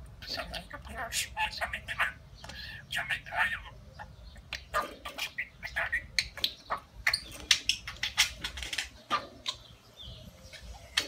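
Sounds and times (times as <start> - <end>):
budgerigar chattering: 0.2 - 9.8.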